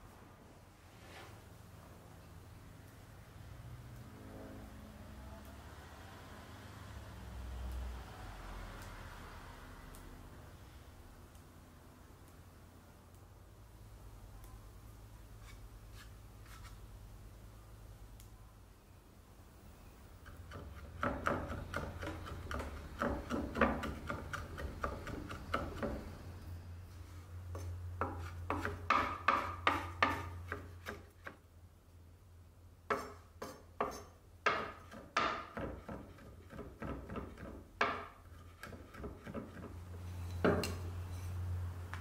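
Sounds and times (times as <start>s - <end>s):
knife chopping on wooden board: 20.5s - 26.1s, 27.6s - 31.1s, 32.9s - 39.7s.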